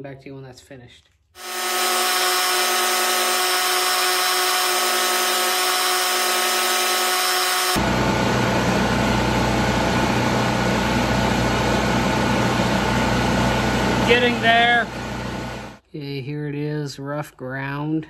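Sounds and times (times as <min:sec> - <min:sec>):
belt grinder running: 0:01.4 - 0:15.4
machine hum with low drone: 0:01.4 - 0:15.8.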